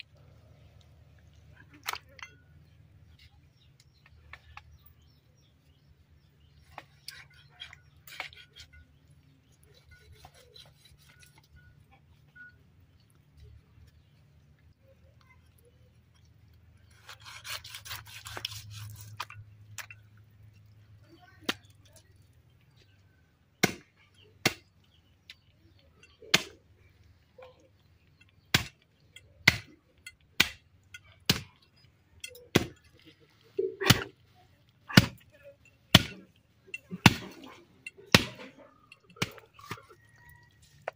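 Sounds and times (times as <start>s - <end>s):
blade rasping over meat: 16.9s - 19.2s
chopper blade chopping bone on wood: 34.9s - 35.2s, 35.9s - 36.2s, 38.1s - 38.5s.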